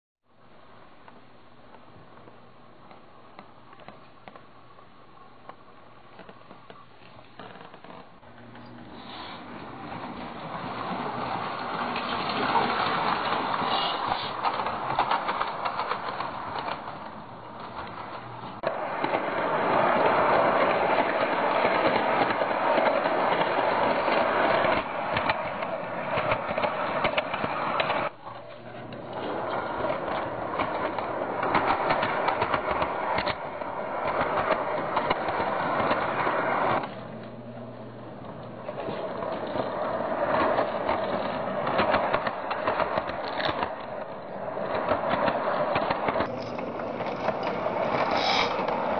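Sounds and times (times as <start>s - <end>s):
toy train motor whirring and rattling: 8.6s - 28.1s, 29.0s - 37.0s, 38.7s - 48.9s.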